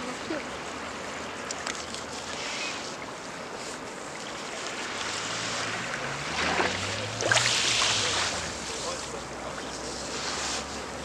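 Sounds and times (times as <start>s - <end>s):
surf washing on pebble beach: 2.4s - 9.5s.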